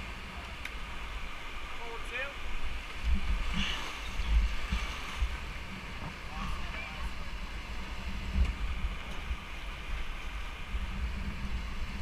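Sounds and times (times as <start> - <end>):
rapids rushing water: 0.0 - 12.0
wind buffeting microphone: 2.4 - 12.0.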